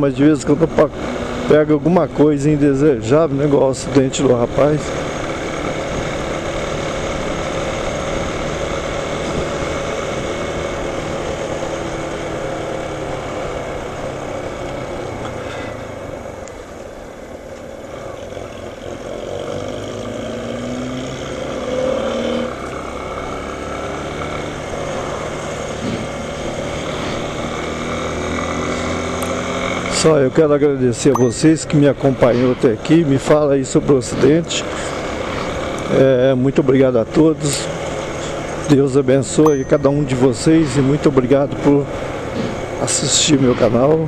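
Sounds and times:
motorcycle engine: 0.0s - 43.5s
road noise: 0.0s - 44.0s.

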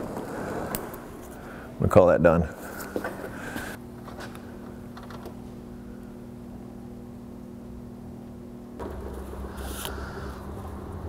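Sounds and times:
low machine hum with tones: 0.0s - 11.0s
loud low rumble: 8.8s - 11.0s.

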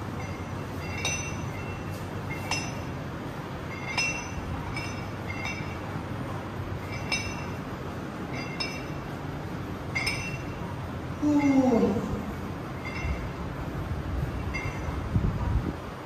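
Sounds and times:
metal dumbbell clinking: 0.0s - 6.0s, 6.7s - 9.2s, 9.8s - 10.8s, 12.7s - 13.6s, 14.3s - 15.1s
low background rumble: 0.0s - 16.0s.

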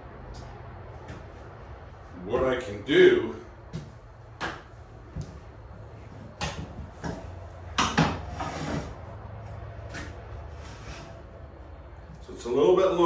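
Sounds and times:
tiles scraping on floor: 8.2s - 9.0s.

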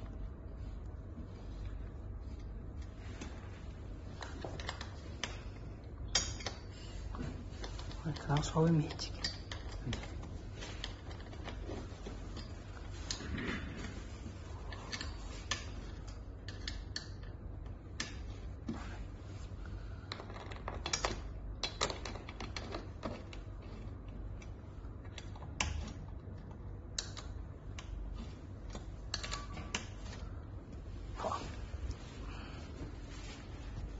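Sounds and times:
steady low hum: 0.0s - 33.9s
light clicks of metal parts: 14.7s - 18.3s.

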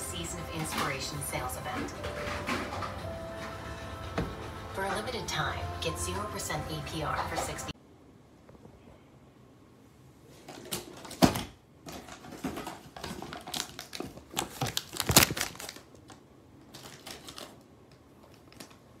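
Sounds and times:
cardboard packaging rustling: 11.9s - 17.6s.

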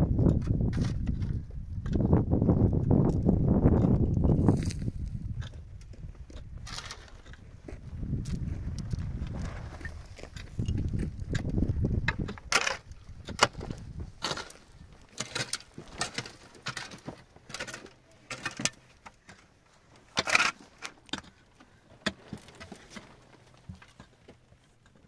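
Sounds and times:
irregular scrapes and knocks: 6.3s - 21.4s.

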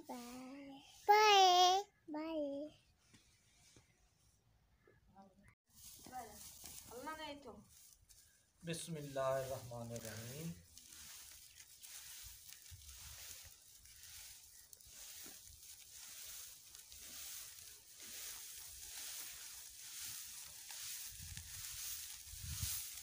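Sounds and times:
dry straw rustling: 5.7s - 23.0s.

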